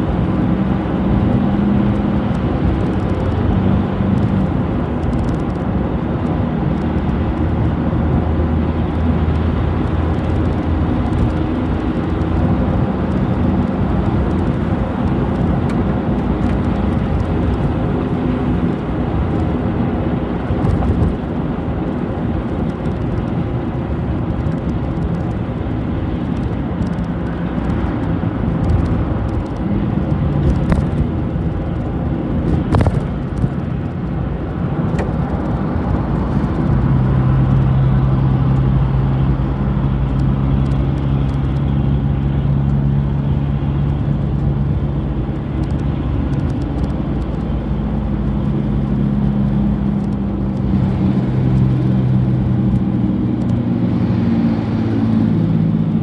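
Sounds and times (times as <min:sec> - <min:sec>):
bus engine drone: 0:00.0 - 0:56.0
low engine hum: 0:00.0 - 0:56.0
road rumble: 0:00.0 - 0:56.0.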